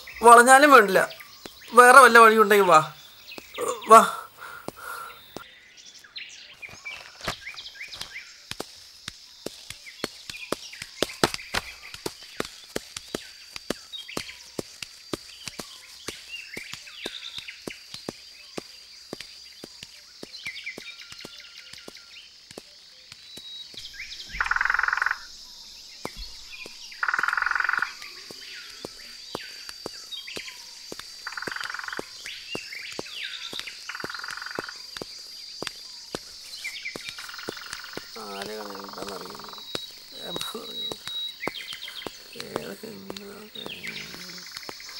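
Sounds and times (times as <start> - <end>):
high-pitched insect drone: 24.2 - 44.9
frog clicks: 24.4 - 25.3, 26.0 - 44.9
frog rasping croaks: 24.4 - 25.3, 27.0 - 28.0, 37.2 - 41.1, 41.8 - 44.9.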